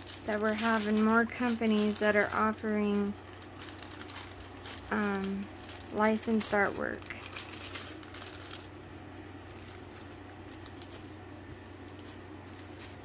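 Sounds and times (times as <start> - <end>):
plastic film rustling: 0.0 - 13.0
steady low hum: 0.0 - 13.0.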